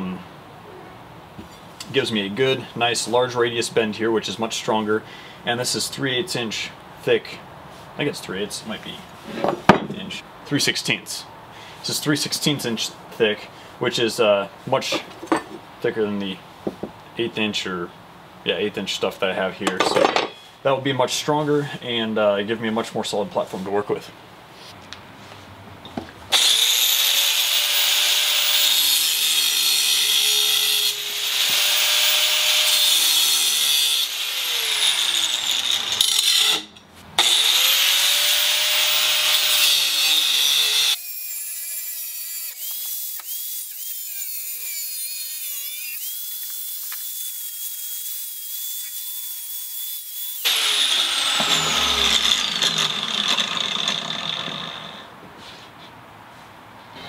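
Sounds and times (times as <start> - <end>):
rotary tool grinding steel: 26.3 - 55.1.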